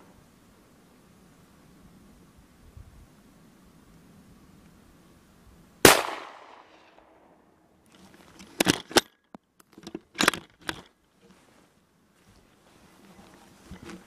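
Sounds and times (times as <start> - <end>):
rifle shot with echo: 5.8 - 7.3
short clicks and knocks: 8.3 - 10.9.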